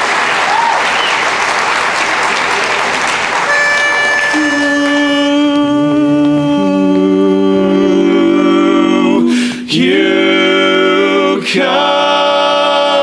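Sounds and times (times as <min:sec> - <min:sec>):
male quartet singing a cappella: 0:04.3 - 0:13.0.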